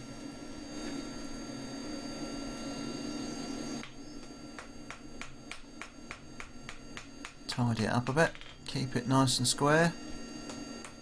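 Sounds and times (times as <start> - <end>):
steady hum: 0.0 - 11.0
hammer striking hot steel on anvil: 4.5 - 7.4.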